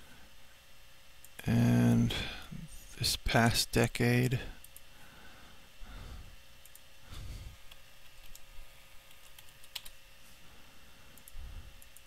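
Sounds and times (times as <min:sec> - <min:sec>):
keyboard typing: 0:07.7 - 0:10.0.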